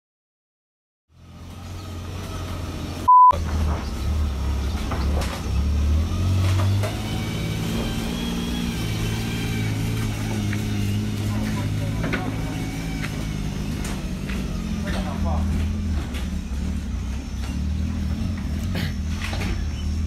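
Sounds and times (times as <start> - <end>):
vehicle engine rumble: 1.1 - 20.0
short loud beep: 3.1 - 3.4.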